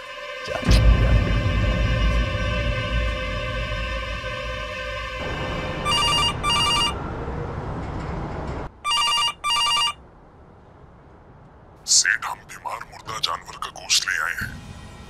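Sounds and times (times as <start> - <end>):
low music drone: 0.0 - 8.5
telephone ringing: 5.9 - 7.0, 8.8 - 10.0.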